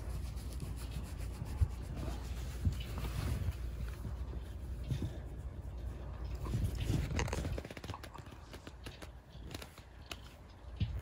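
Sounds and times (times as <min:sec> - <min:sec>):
hand scratching fur: 0:00.0 - 0:10.3.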